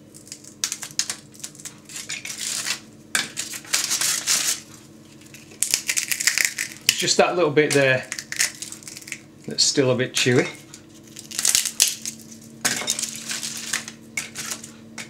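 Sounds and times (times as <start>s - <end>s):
crackling snapping and crunching: 0.0s - 7.1s, 7.7s - 9.3s, 10.9s - 14.8s
foil crinkling: 3.4s - 6.9s, 8.0s - 9.2s, 10.9s - 14.7s.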